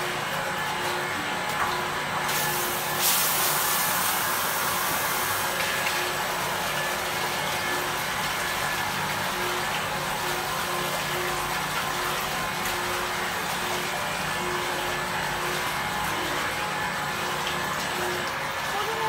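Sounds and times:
mixer machine humming: 0.0 - 19.0.

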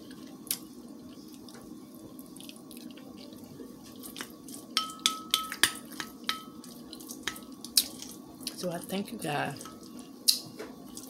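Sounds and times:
steady low hum: 0.0 - 11.0
spoon clinking against ceramic bowl: 4.8 - 6.6.

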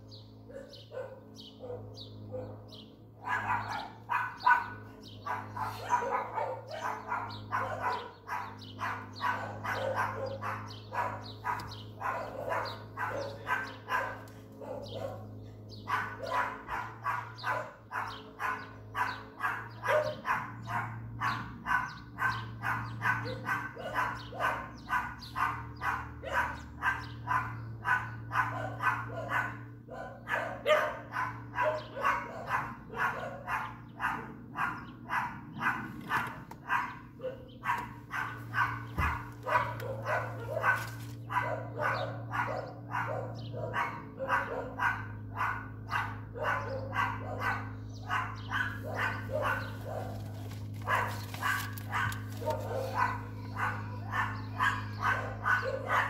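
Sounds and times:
dog barking: 0.5 - 56.0
steady low hum: 22.4 - 56.0.

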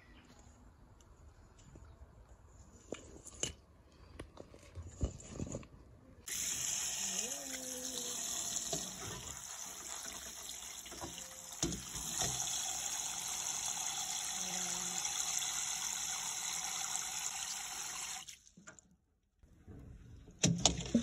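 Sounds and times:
tap water running into colander: 6.3 - 18.5.

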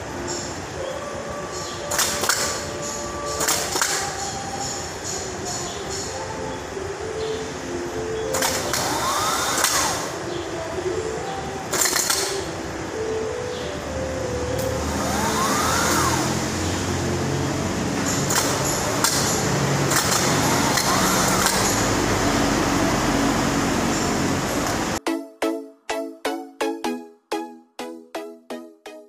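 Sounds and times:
loud mechanical hum: 0.0 - 25.0
sharp electrical clicks: 1.8 - 6.1, 8.3 - 10.2, 11.7 - 12.5, 17.9 - 22.3
starter motor whirring: 8.3 - 10.2, 14.6 - 25.0.

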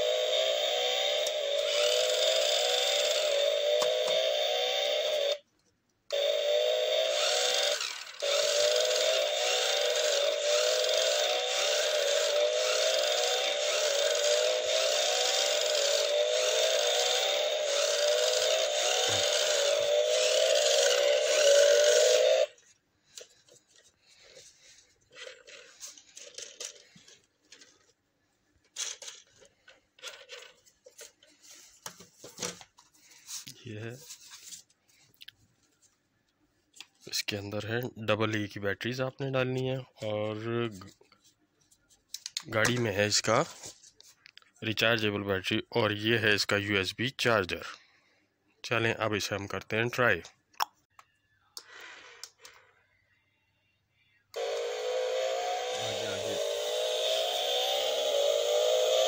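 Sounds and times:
toy car engine sound effect: 0.0 - 5.4, 6.1 - 22.6, 54.4 - 59.0.

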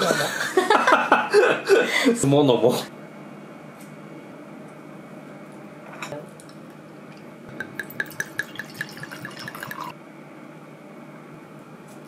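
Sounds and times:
liquid glugging into a glass: 7.5 - 9.9.

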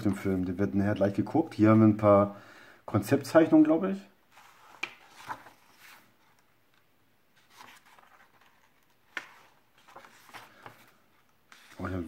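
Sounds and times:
paper pages rustling: 4.3 - 6.5, 7.4 - 12.0.

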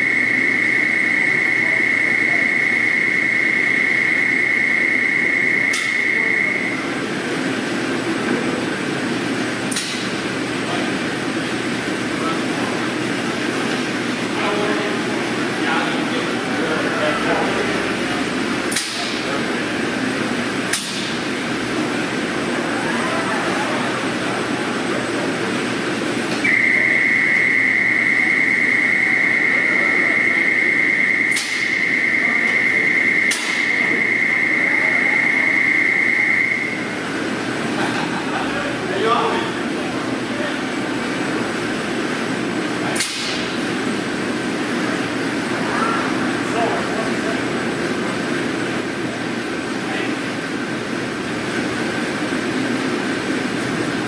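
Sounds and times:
high whine: 0.0 - 54.0
machinery hum: 0.0 - 54.0.

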